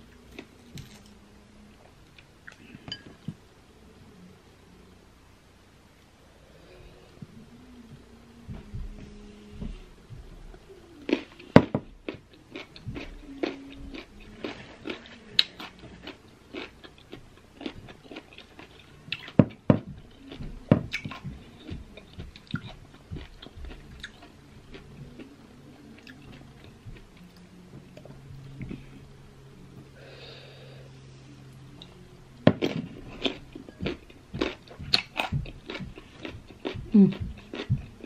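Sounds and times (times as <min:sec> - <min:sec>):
wet chewing: 0:32.6 - 0:38.0
crunching mango bites: 0:33.2 - 0:37.8.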